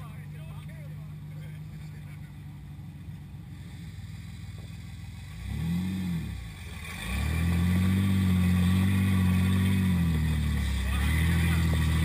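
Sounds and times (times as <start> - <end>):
engine revving: 0.0 - 12.0.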